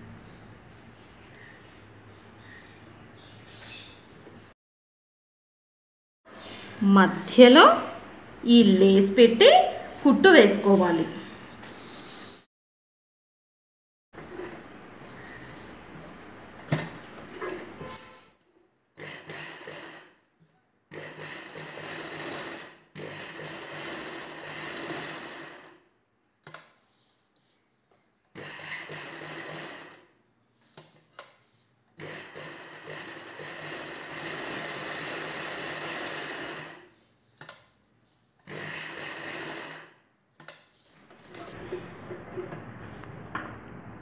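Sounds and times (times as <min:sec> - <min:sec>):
sewing machine stitching: 0:19.0 - 0:20.2, 0:20.9 - 0:25.8, 0:28.3 - 0:30.1, 0:32.0 - 0:37.7, 0:38.4 - 0:40.0.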